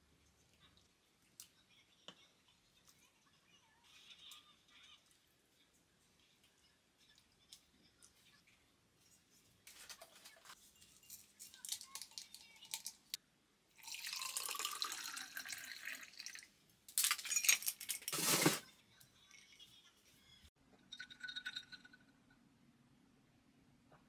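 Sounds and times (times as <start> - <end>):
liquid pouring into glass: 13.8 - 16.5, 20.9 - 22.0
ice cubes clattering into glass: 17.0 - 18.6.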